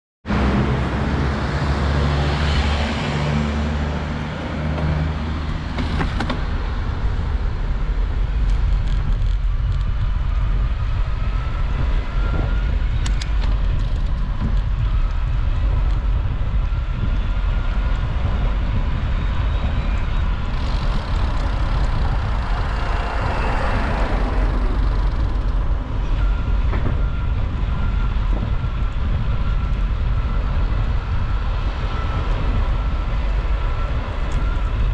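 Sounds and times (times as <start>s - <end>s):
wind and road noise rumble: 0.2s - 34.9s.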